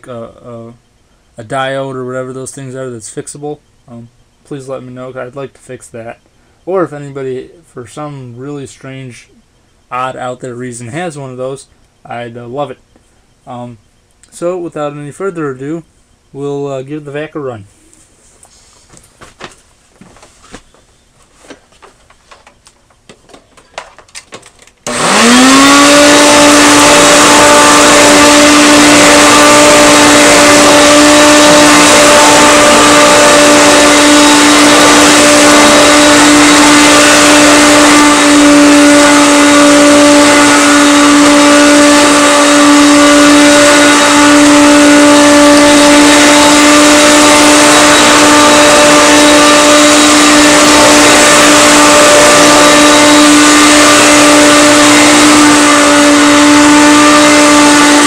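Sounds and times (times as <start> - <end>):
vacuum cleaner motor whining: 20.6 - 58.0.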